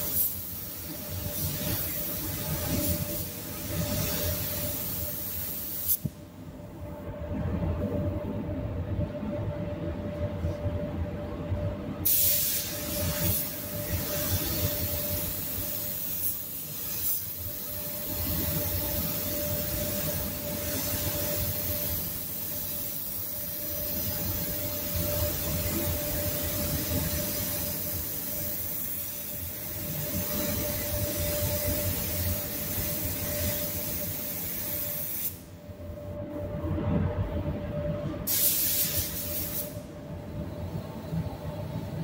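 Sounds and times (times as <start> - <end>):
spray gun air hiss: 0.0 - 6.2, 12.0 - 35.6, 38.2 - 39.9.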